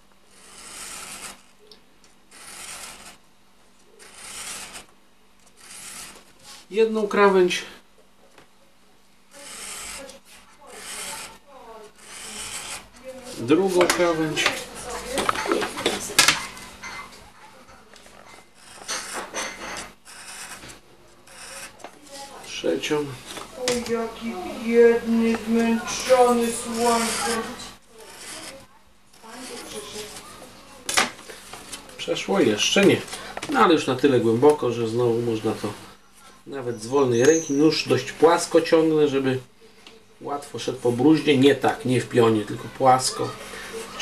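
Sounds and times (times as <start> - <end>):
knife scoring cardboard: 0.3 - 1.5, 2.3 - 3.2, 4.0 - 4.9, 5.5 - 6.7, 9.3 - 14.6, 18.0 - 22.4, 25.3 - 30.3.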